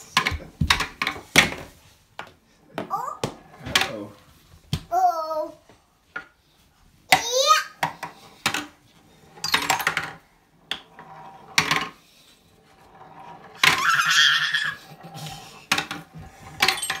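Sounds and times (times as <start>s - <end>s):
wooden balls clacking on tracks: 0.0s - 1.6s, 7.1s - 12.0s, 12.8s - 17.0s.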